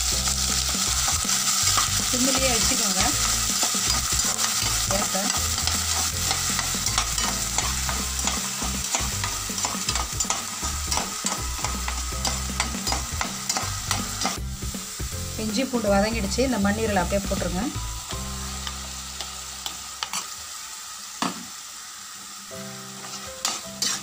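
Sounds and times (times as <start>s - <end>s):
paste sizzling in hot oil: 0.0s - 24.0s
metal spoon scraping a pan: 0.8s - 14.4s, 18.6s - 20.3s, 23.0s - 24.0s.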